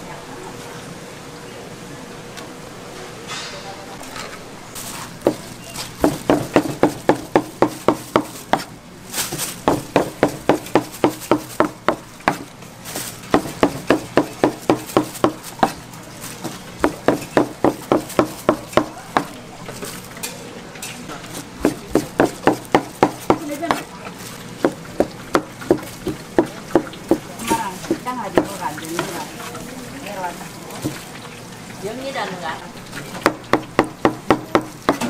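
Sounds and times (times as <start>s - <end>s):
knife chopping on cutting board: 13.3s - 15.8s, 16.8s - 19.3s, 21.6s - 23.9s.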